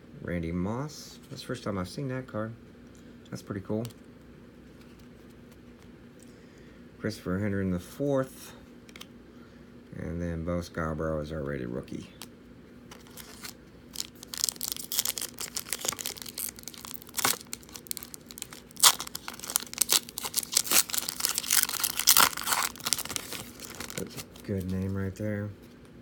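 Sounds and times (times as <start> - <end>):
foil wrapper tearing and crinkling: 12.9 - 24.9.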